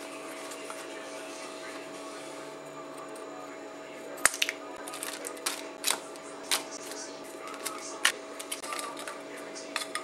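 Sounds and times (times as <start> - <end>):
foil packets crinkling: 4.2 - 9.2.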